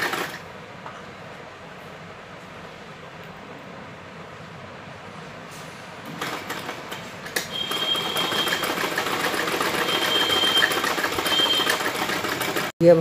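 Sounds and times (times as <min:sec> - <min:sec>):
sewing machine stitching: 0:00.0 - 0:00.4, 0:06.1 - 0:12.7.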